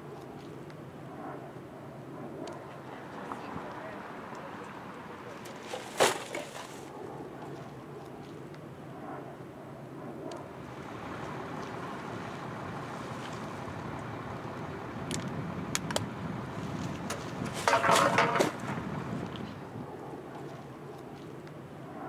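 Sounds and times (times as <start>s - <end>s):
outdoor background noise: 0.0s - 22.0s
plastic bag rustling: 5.5s - 6.9s
sharp clicks: 15.0s - 16.1s.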